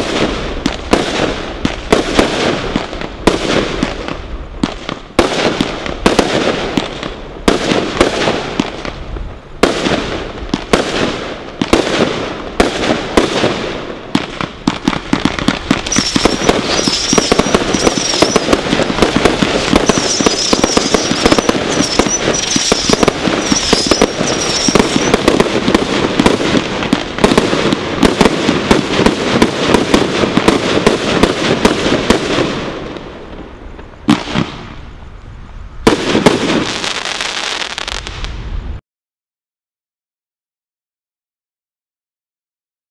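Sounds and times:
firework barrage crackling: 0.0 - 35.1, 35.7 - 38.8
firework launch thumps and bursts: 9.6 - 32.2
high warbling firework whistle: 15.8 - 18.7, 19.8 - 25.2.

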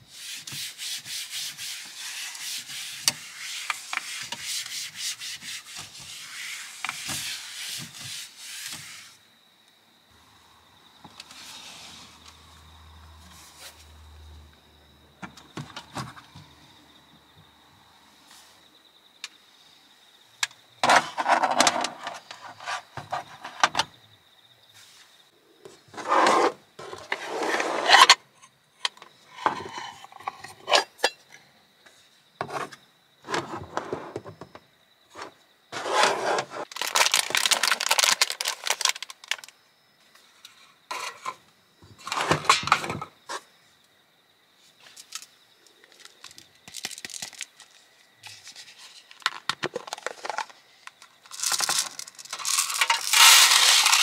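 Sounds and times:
objects rustling and scraping: 0.1 - 9.2, 11.0 - 12.6, 13.2 - 14.0, 20.8 - 23.9, 24.7 - 39.5, 40.1 - 43.5, 44.6 - 54.0.

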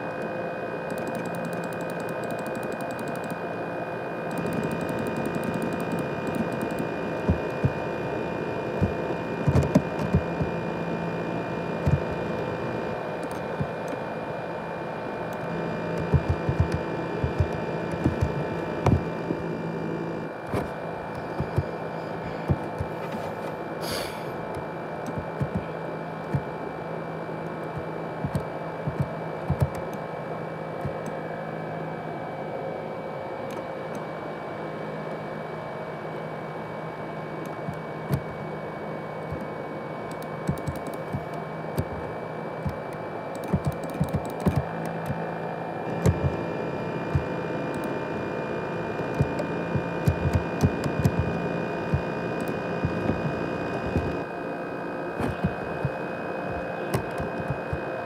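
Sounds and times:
laptop fan whining: 0.0 - 58.0
irregular clicks: 0.9 - 3.4, 4.3 - 7.8, 24.5 - 25.7, 27.5 - 30.0, 40.1 - 45.2, 49.0 - 54.2, 56.9 - 57.8.

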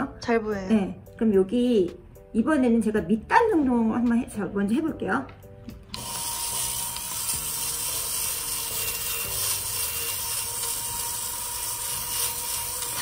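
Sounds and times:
lint remover motor humming: 5.8 - 13.0
blades shaving fabric fuzz: 6.2 - 13.0.

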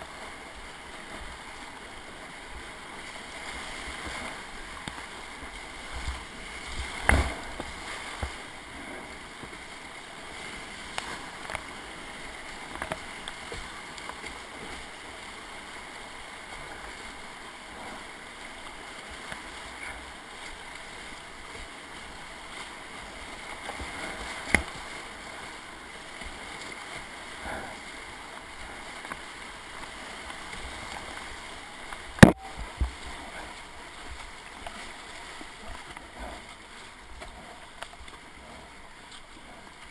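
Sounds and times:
paddle strokes in water: 0.0 - 39.9
whitewater rushing and splashing: 0.0 - 39.9.

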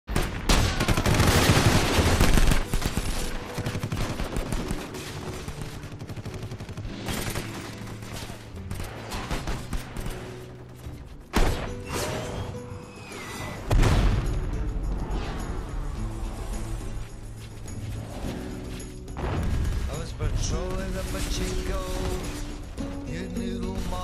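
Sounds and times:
gunfire: 0.1 - 10.6.

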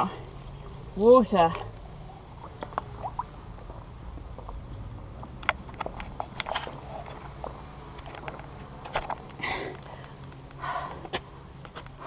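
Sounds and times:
person swallowing water: 2.4 - 3.9.

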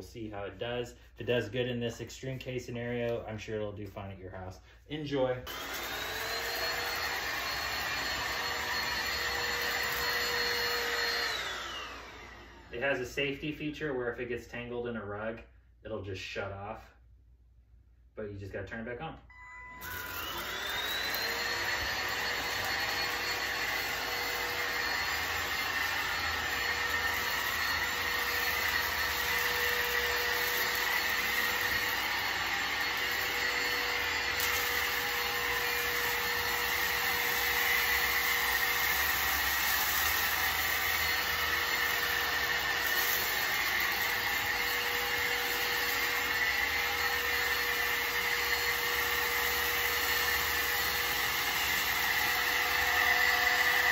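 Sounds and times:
vacuum cleaner motor whining: 5.5 - 13.0, 19.3 - 53.9.

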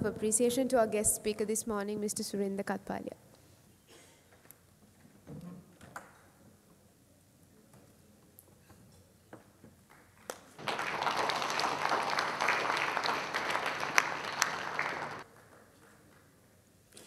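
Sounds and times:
audience applauding: 10.6 - 15.5.

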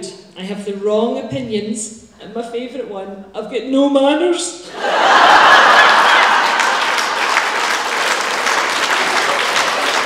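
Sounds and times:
audience applauding: 4.8 - 10.0.

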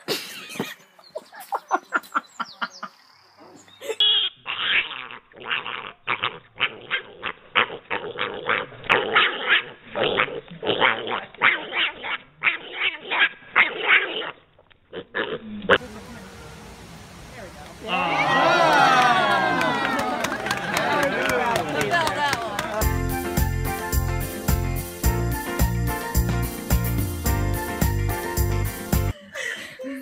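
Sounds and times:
piglet squealing: 4.0 - 15.4.

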